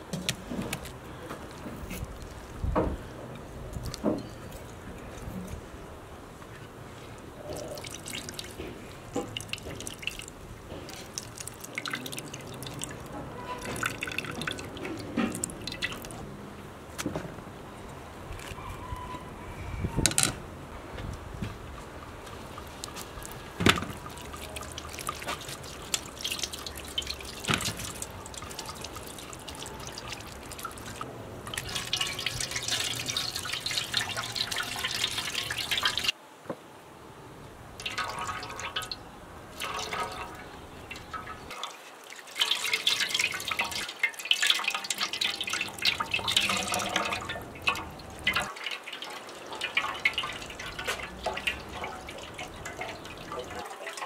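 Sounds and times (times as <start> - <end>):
splashing of potatoes rinsed by hand: 0.0 - 5.7, 6.5 - 16.2, 21.5 - 36.2, 37.8 - 54.0
water pouring into a metal basin: 7.0 - 16.2, 22.3 - 36.2, 37.8 - 54.0.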